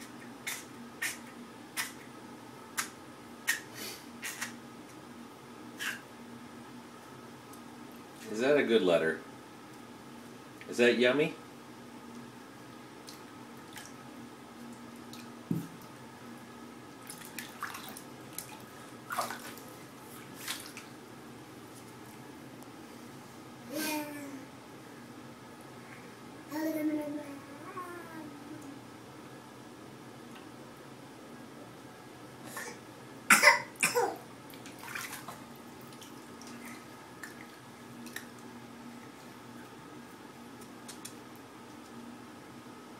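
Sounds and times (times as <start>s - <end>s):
steady low hum: 0.0s - 42.9s
bath water splashing: 17.0s - 21.0s, 34.5s - 38.4s
cough-like vocal bursts: 32.5s - 34.2s.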